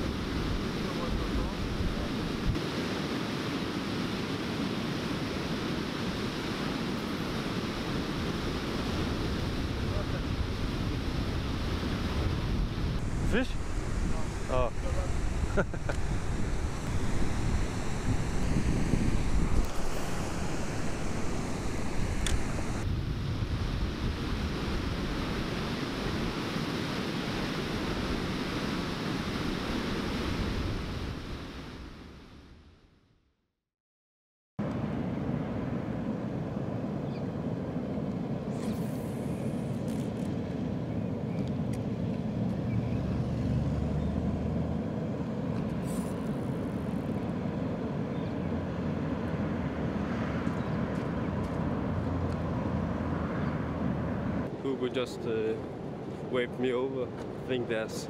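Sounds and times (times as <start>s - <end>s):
wind buffeting microphone: 8.1s - 26.5s.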